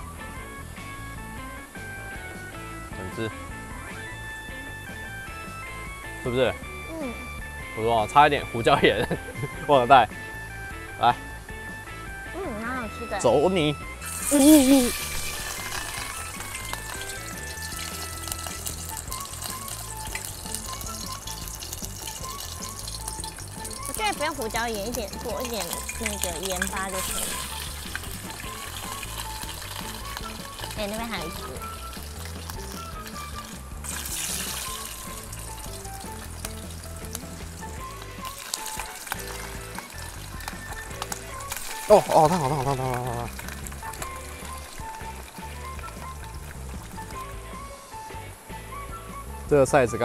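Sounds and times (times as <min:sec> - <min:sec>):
background music with bass line: 0:00.0 - 0:50.0
hot oil sizzling and crackling: 0:13.1 - 0:49.2.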